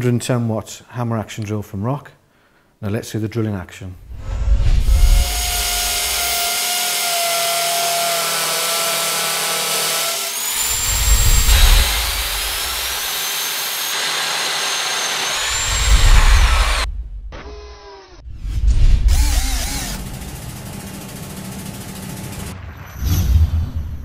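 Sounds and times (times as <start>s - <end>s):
hammer drill boring into brick: 5.2s - 18.1s, 19.1s - 22.4s
high motor whine: 19.1s - 22.6s.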